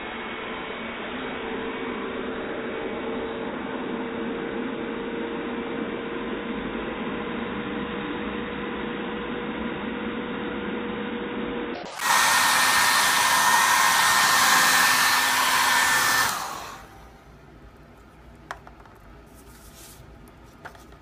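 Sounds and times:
hair dryer whining: 0:11.8 - 0:18.7.

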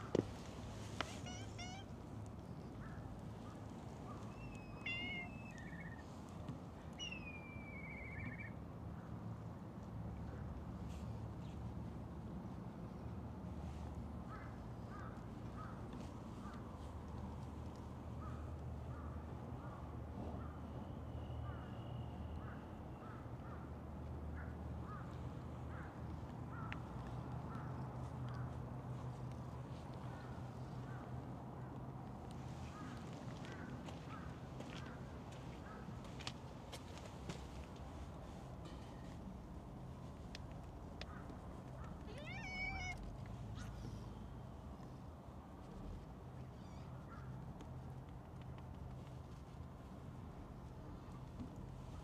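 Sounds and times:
cat meowing: 0:01.0 - 0:01.9, 0:04.5 - 0:05.9, 0:42.0 - 0:43.1
bird calls: 0:04.1 - 0:06.1, 0:07.0 - 0:08.6.

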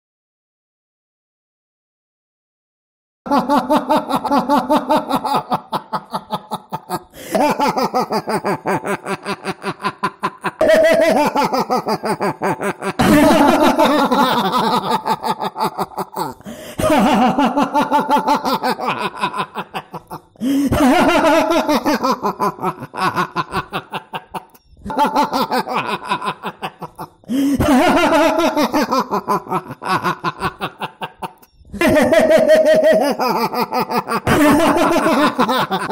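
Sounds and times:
man laughing villainously: 0:03.3 - 0:35.9.

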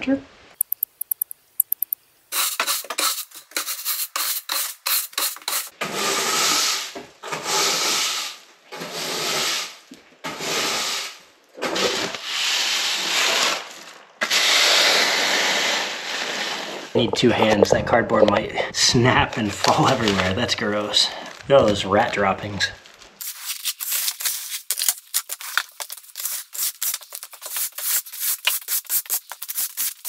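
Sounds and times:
push broom sweeping floor: 0:02.4 - 0:17.1, 0:25.3 - 0:30.0.

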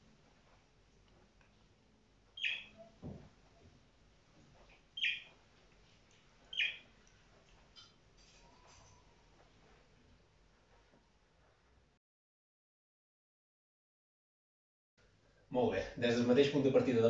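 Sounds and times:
soft thump: 0:03.0 - 0:03.3.

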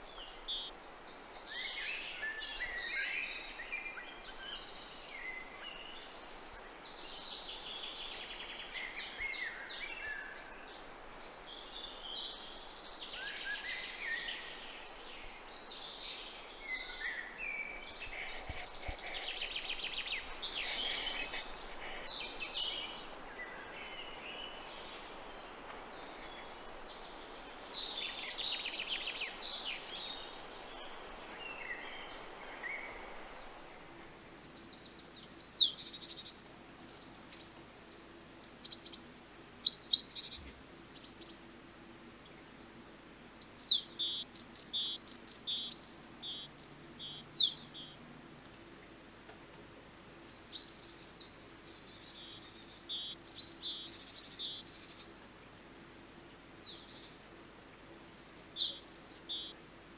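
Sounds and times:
songbirds chirping and trilling: 0:00.0 - 0:41.6, 0:42.2 - 0:55.6, 0:56.2 - 0:59.9.

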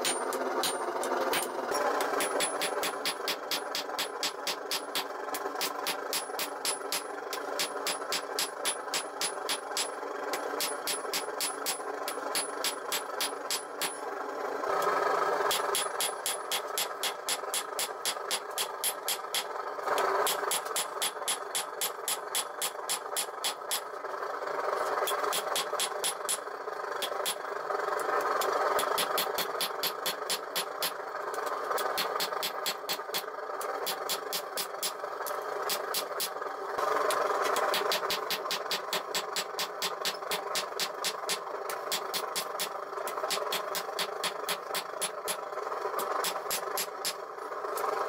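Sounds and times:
hammer striking steel on anvil: 0:00.0 - 0:14.0, 0:15.5 - 0:19.5, 0:20.2 - 0:23.9, 0:25.1 - 0:26.4, 0:27.0 - 0:27.4, 0:28.4 - 0:31.0, 0:31.8 - 0:35.0, 0:35.7 - 0:36.4, 0:37.1 - 0:45.4, 0:46.0 - 0:47.2
steady background noise: 0:00.0 - 0:48.0
steady rushing hum: 0:15.5 - 0:23.9.

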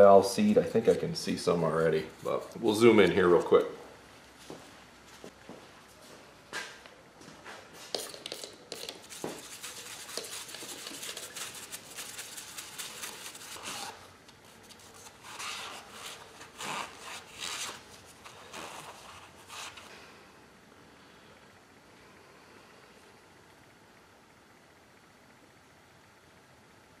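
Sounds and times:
brush scraping metal: 0:08.0 - 0:19.9.

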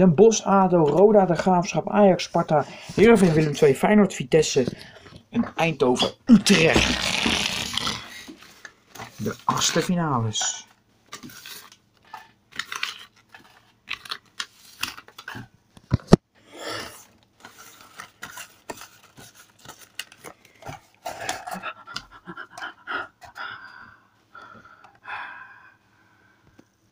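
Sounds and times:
breathing: 0:02.6 - 0:03.0, 0:04.7 - 0:05.2, 0:22.8 - 0:26.6.

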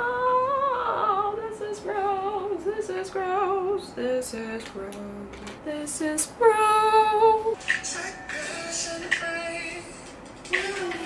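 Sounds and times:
woman singing: 0:00.0 - 0:11.0
music: 0:07.6 - 0:11.0.

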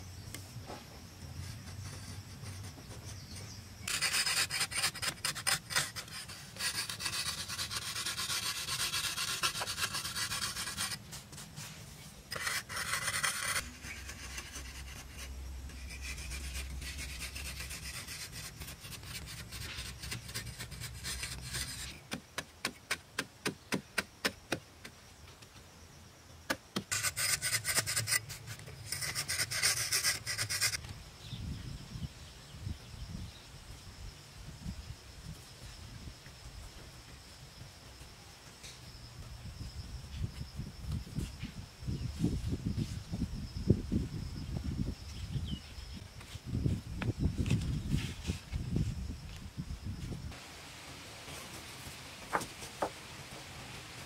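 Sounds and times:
blade scraping plaster wall: 0:03.9 - 0:11.0, 0:12.3 - 0:22.0.

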